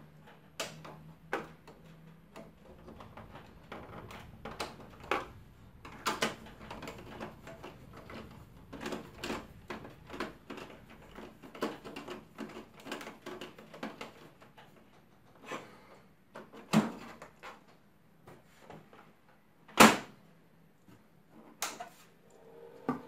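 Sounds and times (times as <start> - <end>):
copier cover thudding shut: 19.7 - 20.2.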